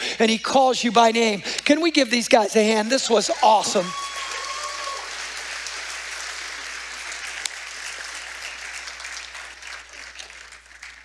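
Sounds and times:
congregation applauding: 0:02.8 - 0:11.0.

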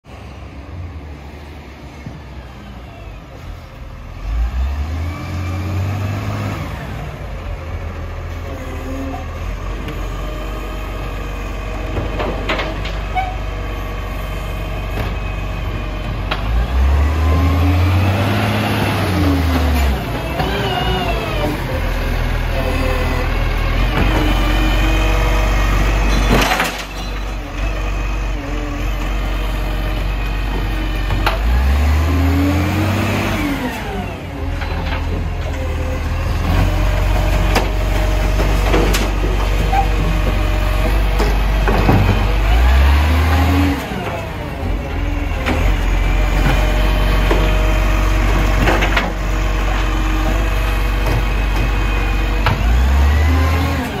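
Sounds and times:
garbage truck diesel engine revving: 0:03.4 - 0:54.0.

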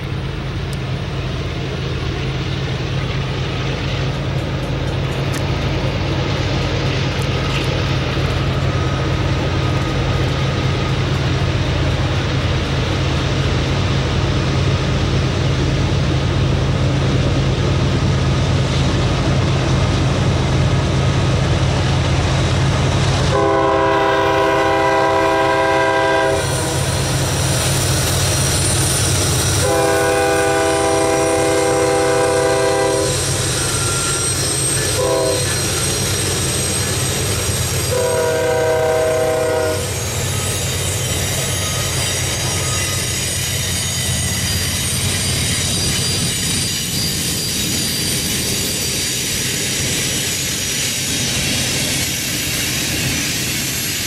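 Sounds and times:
wheels clacking over rail joints: 0:00.0 - 0:15.8
diesel locomotive engines running: 0:00.0 - 0:54.0
train air horn: 0:23.3 - 0:26.9, 0:29.6 - 0:35.9, 0:37.8 - 0:40.0.

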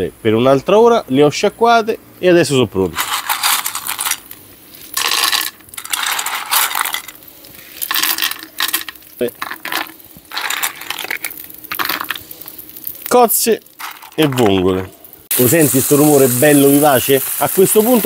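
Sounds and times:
person speaking: 0:00.0 - 0:04.2, 0:09.1 - 0:09.7, 0:12.0 - 0:18.0
hissing sizzle of oil: 0:00.0 - 0:18.0
shells clattering against pan: 0:03.0 - 0:07.2, 0:07.8 - 0:12.2.

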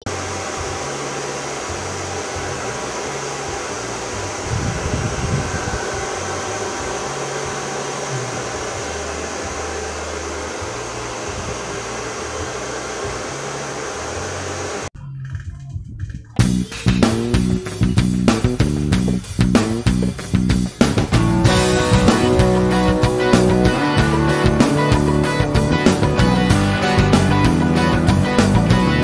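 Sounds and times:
hair dryer running: 0:00.0 - 0:14.9, 0:21.2 - 0:29.0.

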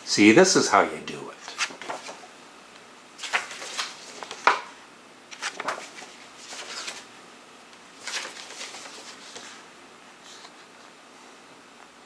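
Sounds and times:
paper and card rustling: 0:01.4 - 0:02.3, 0:03.2 - 0:04.7, 0:05.3 - 0:07.1, 0:08.0 - 0:09.6.

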